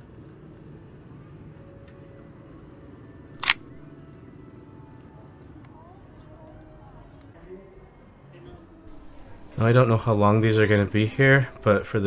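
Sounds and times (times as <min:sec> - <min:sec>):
camera shutter click: 0:03.4 - 0:03.8.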